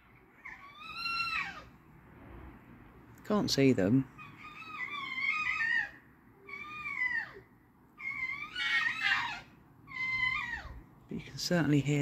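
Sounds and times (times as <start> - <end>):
fox whining cries: 0.0 - 1.8, 4.1 - 10.9.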